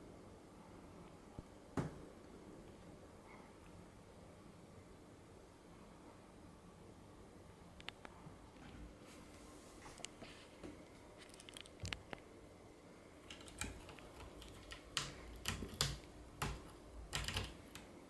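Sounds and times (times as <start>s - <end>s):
cat claws scratching rope: 13.3s - 17.9s.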